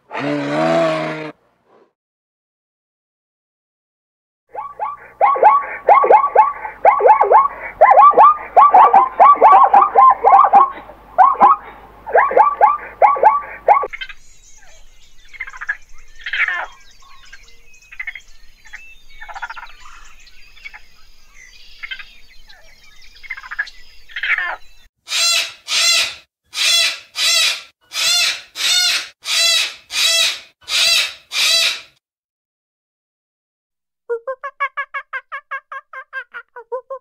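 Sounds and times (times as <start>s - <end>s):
cockatoo screeching: 0.1s - 1.4s, 4.6s - 13.9s, 25.1s - 32.0s
raccoon calls: 4.5s - 14.0s, 25.1s - 32.0s.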